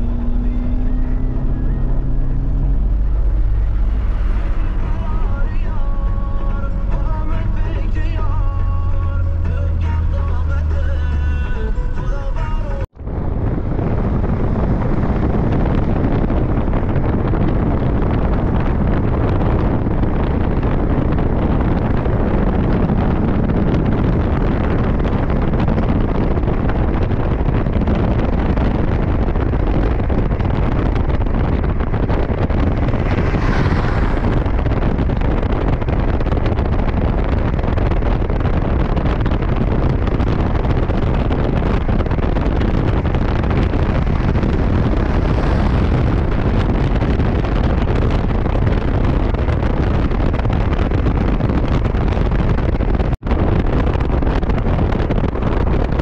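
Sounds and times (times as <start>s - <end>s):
loud rushing noise: 0.0s - 11.7s, 27.9s - 38.2s, 38.8s - 56.0s
deep rumble: 0.0s - 56.0s.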